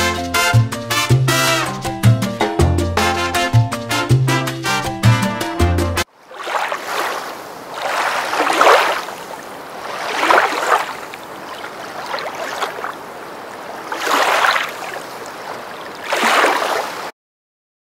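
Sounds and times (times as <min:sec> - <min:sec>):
waves washing in: 0:06.1 - 0:17.1.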